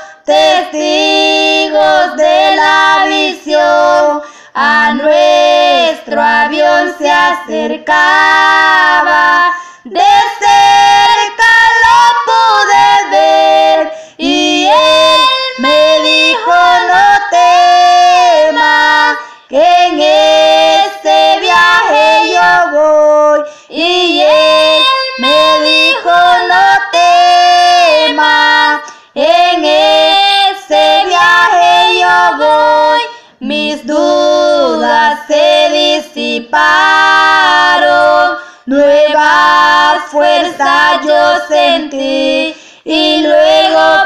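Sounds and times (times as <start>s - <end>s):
high solo voice singing: 0.0s - 44.0s.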